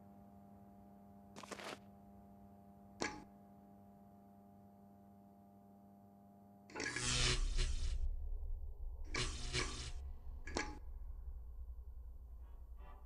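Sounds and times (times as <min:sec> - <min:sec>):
street lamps electric hum: 0:06.7 - 0:13.0.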